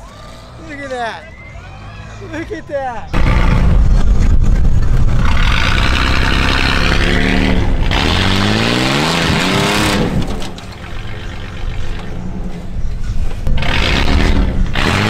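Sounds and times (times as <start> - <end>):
tires spinning in dirt: 0.0 - 15.0
engine revving hard: 3.1 - 12.4, 13.4 - 15.0.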